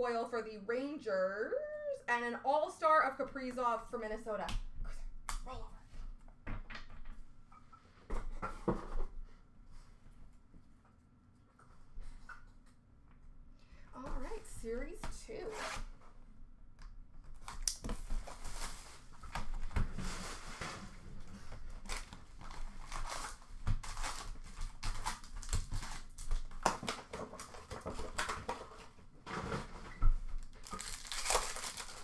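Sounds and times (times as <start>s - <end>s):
plastic wrappers crinkling: 21.7s - 28.9s, 30.4s - 32.0s
wrapper tearing sharply: 30.6s - 32.0s.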